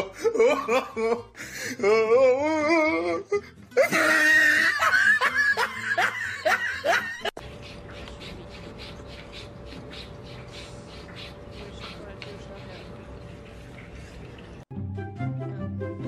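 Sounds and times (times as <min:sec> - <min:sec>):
person laughing: 0:00.0 - 0:07.4.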